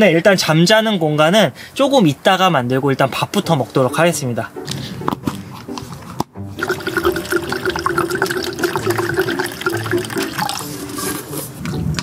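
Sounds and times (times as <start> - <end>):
water pouring into a container: 6.6 - 11.2.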